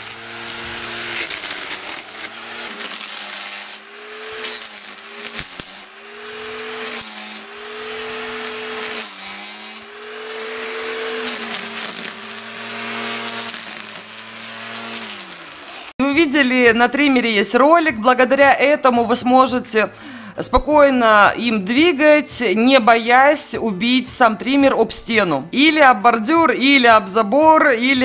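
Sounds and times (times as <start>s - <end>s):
string trimmer cutting weeds: 0.0s - 16.0s.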